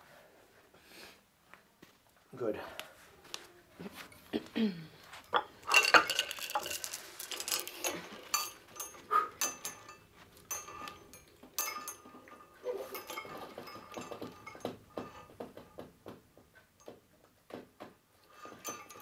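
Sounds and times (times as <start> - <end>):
chain clinking on weight plates: 5.2 - 15.8, 18.2 - 19.0.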